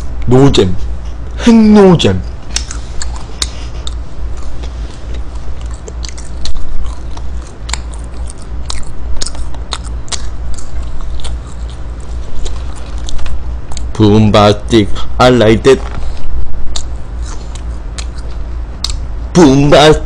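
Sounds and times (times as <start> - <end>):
steady low hum: 0.0 - 20.0
wet mouth clicks: 2.5 - 11.8, 16.6 - 19.0
close chewing of food: 2.5 - 14.0, 16.0 - 19.0.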